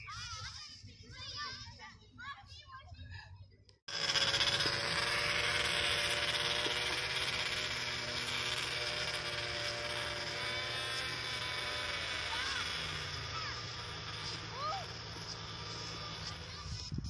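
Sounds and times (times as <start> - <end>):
snowmobile engine drone: 3.9 - 17.0.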